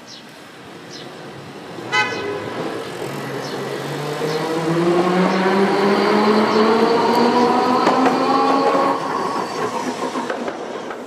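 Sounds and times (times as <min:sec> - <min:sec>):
streetcar motors whining: 0:00.4 - 0:11.0
streetcar warning signal: 0:01.8 - 0:09.7.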